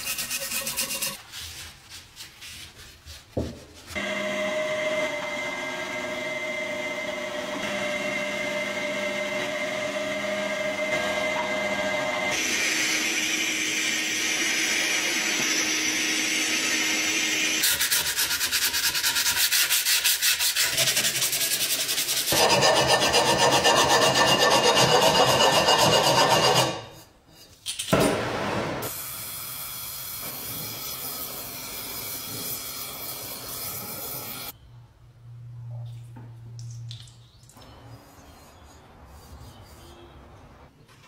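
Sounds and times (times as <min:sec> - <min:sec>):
file scraping metal: 0:00.0 - 0:01.6, 0:17.6 - 0:27.6, 0:37.8 - 0:40.4.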